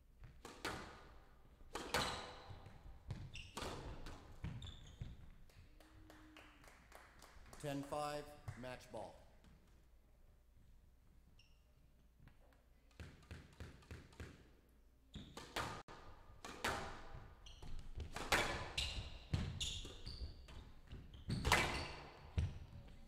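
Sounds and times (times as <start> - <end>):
squash ball hits: 0.2 - 5.2, 12.9 - 14.5, 15.2 - 20.1, 20.8 - 22.8
shoes squeaking on court: 1.7 - 5.4, 11.3 - 11.9, 15.1 - 15.7, 17.2 - 23.0.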